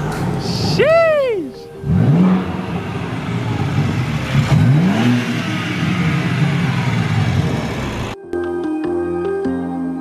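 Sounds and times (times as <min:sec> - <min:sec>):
car engine revving: 0:01.8 - 0:08.2.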